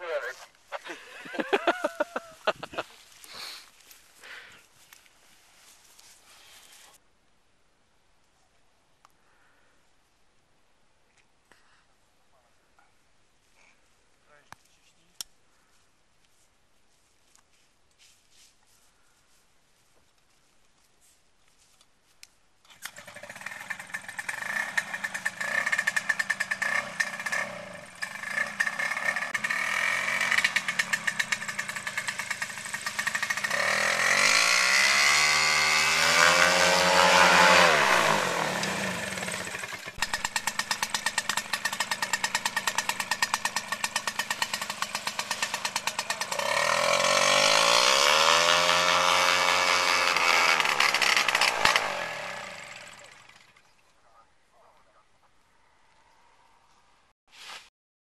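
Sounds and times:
paramotor engine revving: 22.9s - 53.6s.

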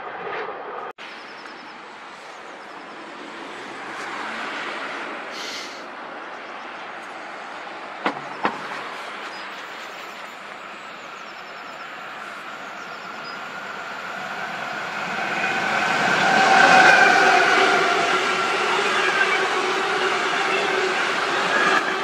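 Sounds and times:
train rolling: 7.1s - 22.0s.

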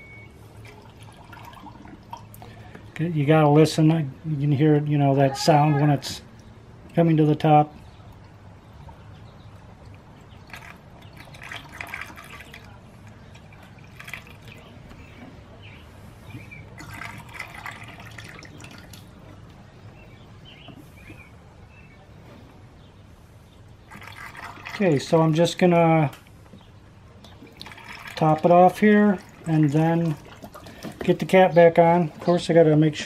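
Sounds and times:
liquid gurgling: 0.6s - 2.6s, 10.2s - 14.8s, 16.7s - 19.2s, 23.8s - 25.2s, 27.3s - 31.3s.

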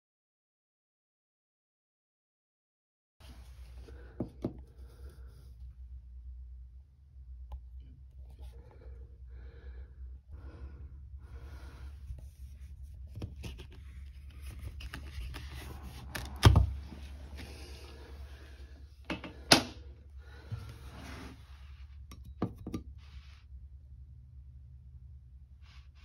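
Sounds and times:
plastic scraping and creaking: 13.2s - 17.8s.

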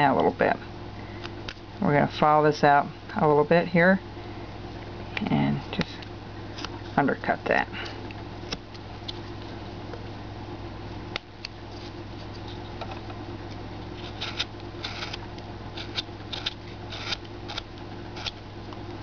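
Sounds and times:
steady low hum: 0.0s - 19.0s
knife carving wood: 14.0s - 18.4s.

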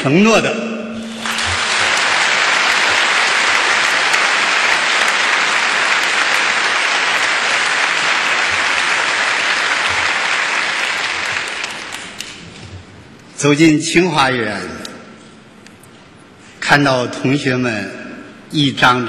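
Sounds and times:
audience applauding: 1.1s - 12.4s.

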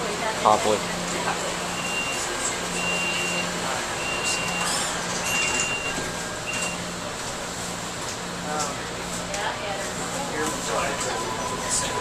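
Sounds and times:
train car low hum: 0.0s - 12.0s
electronic warning beeps: 1.7s - 6.9s.

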